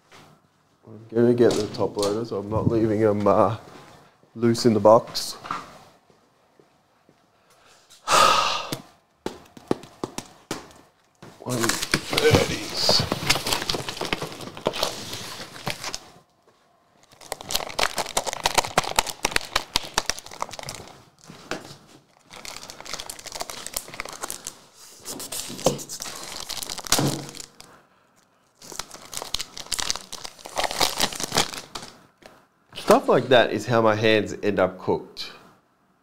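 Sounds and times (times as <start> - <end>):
plastic wrap crinkling and tearing: 11.4 - 16.2, 17.0 - 27.8, 28.5 - 32.0.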